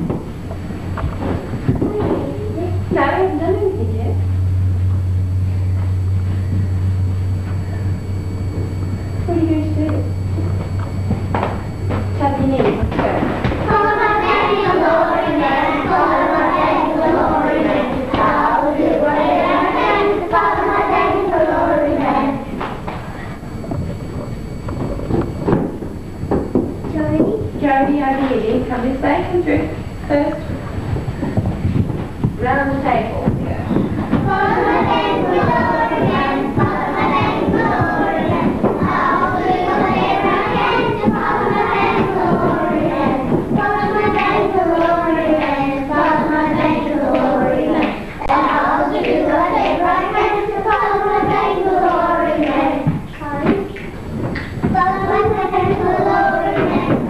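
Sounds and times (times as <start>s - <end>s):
children singing together: 13.6s - 22.6s, 33.8s - 53.6s, 54.3s - 57.0s.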